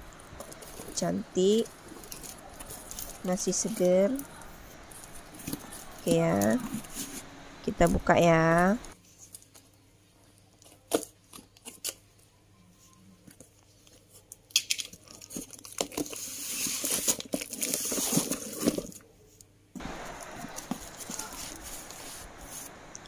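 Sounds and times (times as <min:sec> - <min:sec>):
newspaper rustling and crinkling: 0:00.0 - 0:09.6, 0:14.8 - 0:19.0, 0:19.8 - 0:22.9.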